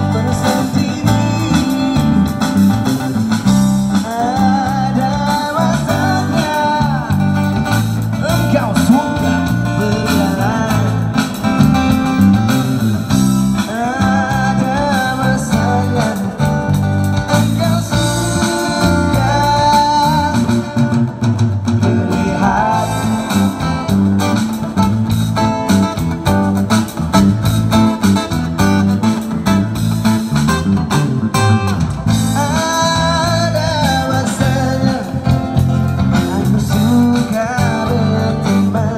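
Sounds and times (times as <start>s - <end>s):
person singing: 0.0s - 2.7s, 3.8s - 12.2s, 13.5s - 21.0s, 21.8s - 24.0s, 32.2s - 38.9s
amplified acoustic guitar: 0.0s - 38.9s
bass line: 0.0s - 38.9s
drum kit: 0.0s - 38.9s.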